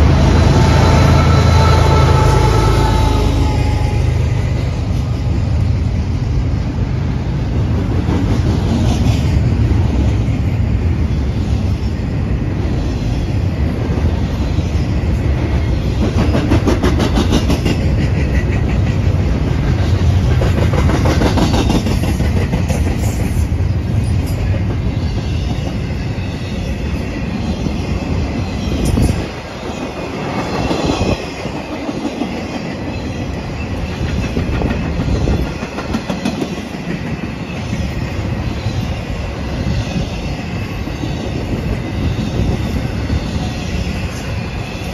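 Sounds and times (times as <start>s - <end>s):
freight train rumbling past: 0.0s - 44.9s
train wheels clicking over rail joints: 15.1s - 26.0s, 28.8s - 38.4s.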